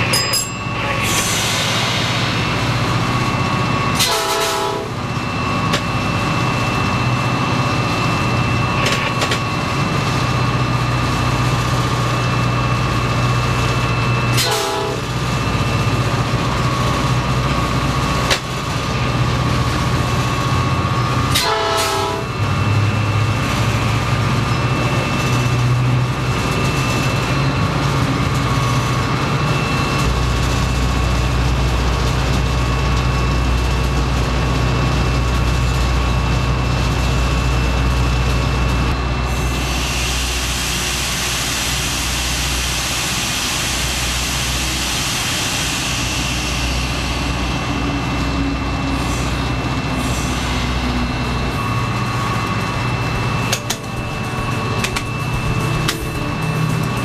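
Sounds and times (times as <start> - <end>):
locomotive engine rumble: 0.0 - 57.0
train horn blasts: 4.0 - 5.0, 14.4 - 15.1, 21.3 - 22.4.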